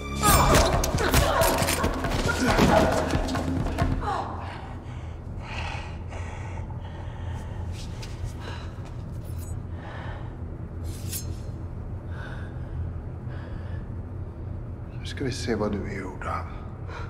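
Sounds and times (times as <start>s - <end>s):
steady low rumble: 3.4s - 17.0s.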